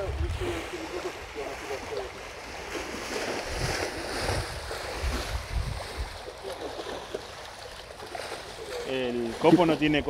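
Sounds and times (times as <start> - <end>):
wind buffeting microphone: 0.0 - 6.4
river water on shore: 0.0 - 10.0.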